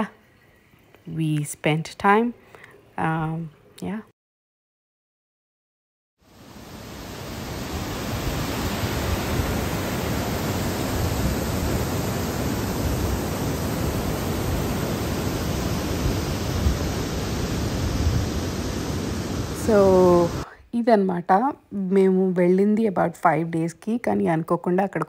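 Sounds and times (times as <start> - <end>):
waterfall rushing: 6.3 - 20.4.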